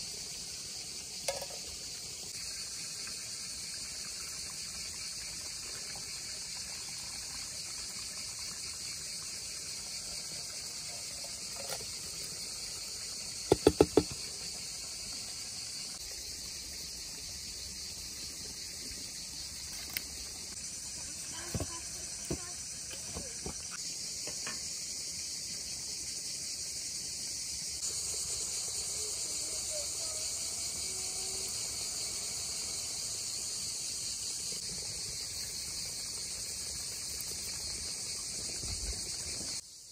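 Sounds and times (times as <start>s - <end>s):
crickets and insects chirping: 0.0s - 39.9s
sharp knocks: 13.5s - 14.2s.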